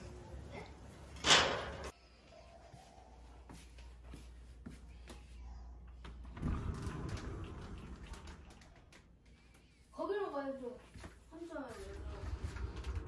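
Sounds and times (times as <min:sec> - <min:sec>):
sliding door rolling open: 0:06.3 - 0:08.6, 0:12.0 - 0:13.0.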